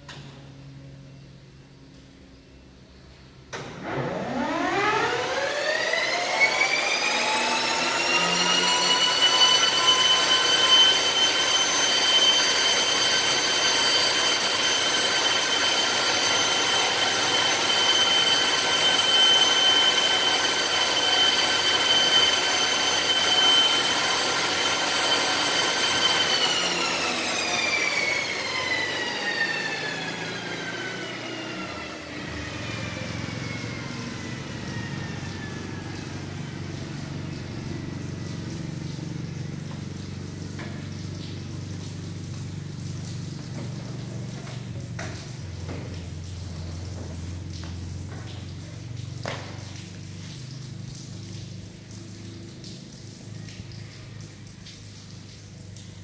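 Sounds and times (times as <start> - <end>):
turboprop engine high whine: 3.4 - 45.8.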